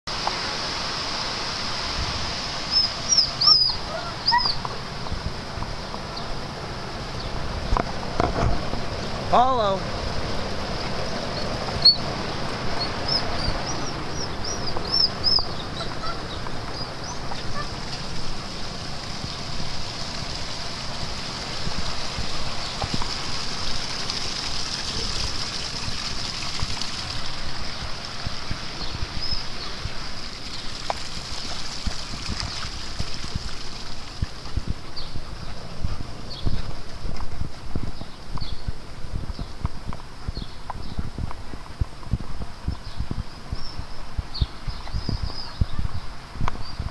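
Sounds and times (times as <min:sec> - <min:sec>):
steady rushing outdoor noise: 0:00.0 - 0:46.9
high bird chirps: 0:02.7 - 0:04.6, 0:11.3 - 0:12.1, 0:12.8 - 0:17.7.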